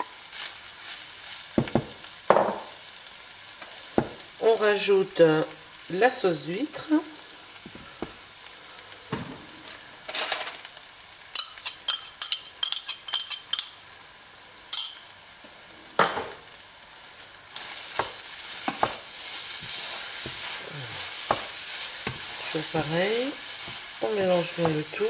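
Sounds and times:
filling sizzling in a pan: 0.0 - 25.0
spatulas knocking on pan: 1.6 - 2.7, 18.0 - 19.0.

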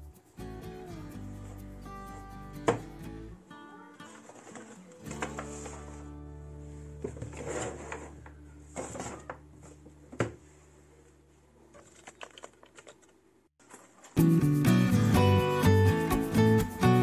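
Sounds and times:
knocks and rustles of items: 4.1 - 6.0, 7.0 - 10.6, 11.6 - 14.2.

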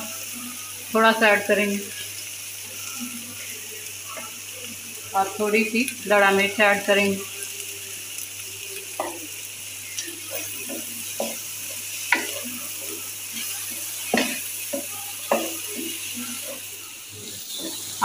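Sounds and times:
food sizzling in wok: 0.0 - 18.0
spatula scraping and knocking wok: 10.4 - 18.0.

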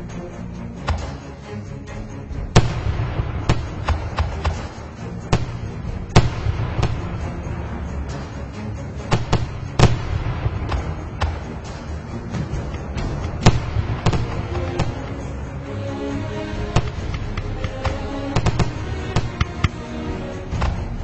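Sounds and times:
fireworks bursting with bangs: 2.5 - 7.6, 9.0 - 15.4, 16.5 - 19.8.

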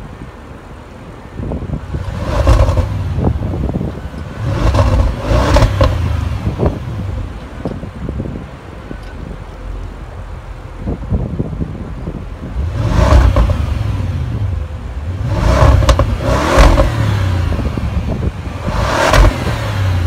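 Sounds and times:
car engine revving from idle: 2.0 - 3.4, 4.2 - 7.1, 12.5 - 20.0.

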